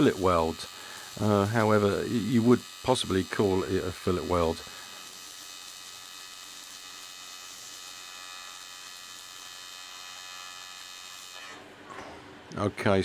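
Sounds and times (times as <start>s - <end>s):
welding arc hissing: 0.0s - 11.7s.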